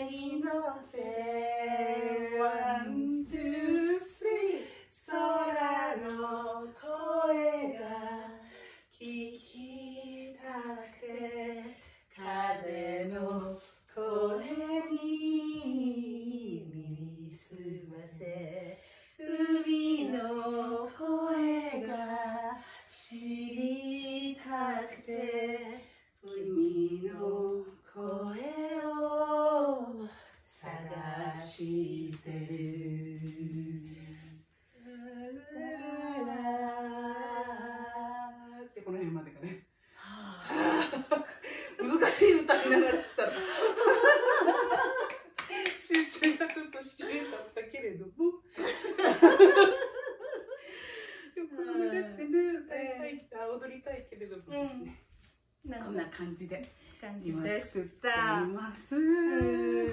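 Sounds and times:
women singing unaccompanied: 0:00.0 - 0:39.5, 0:51.3 - 0:55.1, 0:57.2 - 0:59.9.

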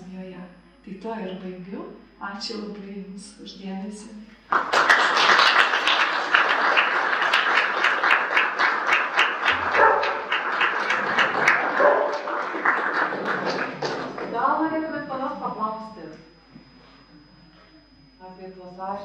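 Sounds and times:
audience applauding: 0:04.5 - 0:14.4.

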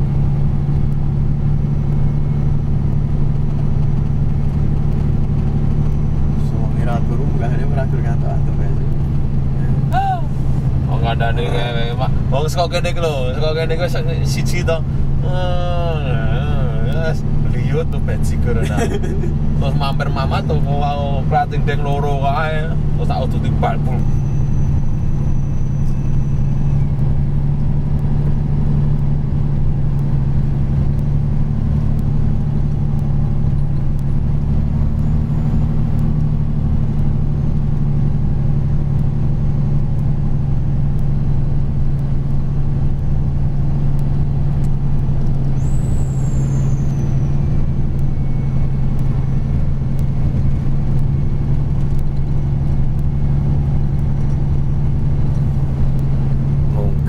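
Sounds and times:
diesel truck engine droning: 0:00.0 - 0:57.0
high squeal falling in pitch: 0:23.8 - 0:27.2, 0:45.6 - 0:48.6.

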